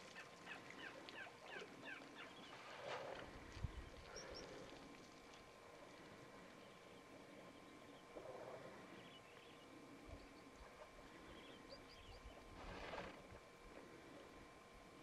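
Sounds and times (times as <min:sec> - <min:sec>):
faint bird chirps: 0:00.2 - 0:02.6, 0:03.7 - 0:04.6.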